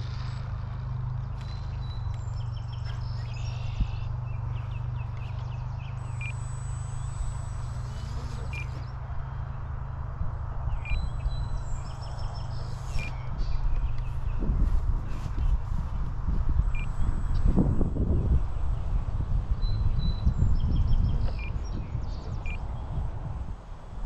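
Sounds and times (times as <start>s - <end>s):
birds chirping: 0.0s - 23.3s
wind buffeting microphone: 9.2s - 24.0s.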